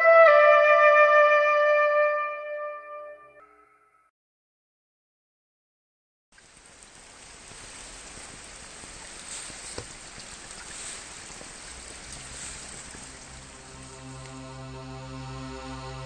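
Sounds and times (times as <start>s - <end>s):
soft music: 0.0s - 4.0s, 13.0s - 16.0s
flowing water: 6.3s - 16.0s.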